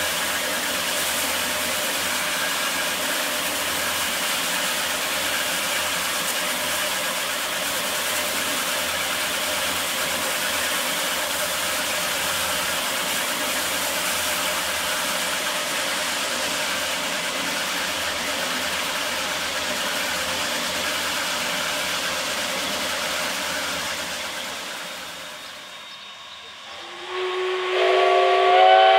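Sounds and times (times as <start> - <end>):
machine running hiss and rumble: 0.0 - 28.9.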